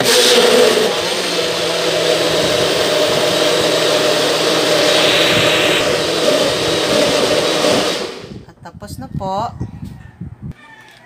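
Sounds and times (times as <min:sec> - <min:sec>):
blender motor running: 0:00.0 - 0:08.4.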